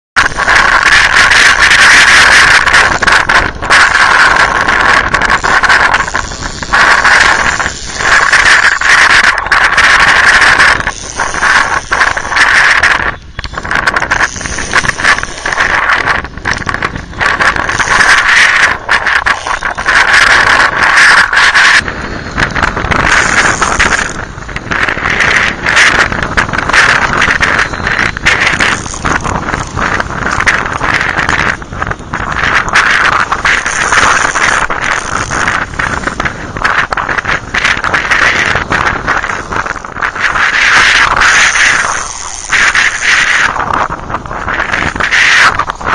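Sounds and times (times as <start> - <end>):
fishing reel whirring: 0.2 - 45.9.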